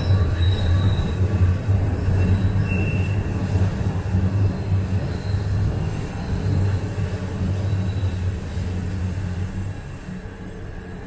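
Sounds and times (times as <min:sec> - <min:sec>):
high wheel squeal: 0:00.0 - 0:03.7, 0:04.4 - 0:08.6
subway train rumble: 0:00.0 - 0:11.0.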